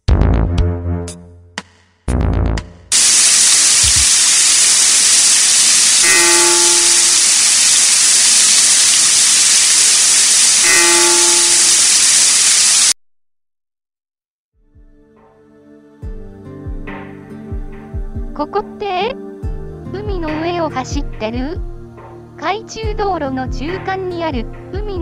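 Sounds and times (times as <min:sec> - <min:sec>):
loud steady hiss: 0:02.9 - 0:13.0
short pitched tones: 0:02.9 - 0:13.0.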